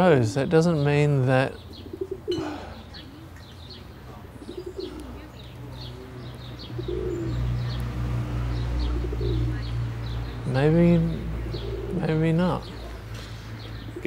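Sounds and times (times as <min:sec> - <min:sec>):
small birds chirping: 0:00.0 - 0:14.0
pigeon-like cooing: 0:01.6 - 0:07.8, 0:08.6 - 0:09.8, 0:10.8 - 0:13.0, 0:13.8 - 0:14.0.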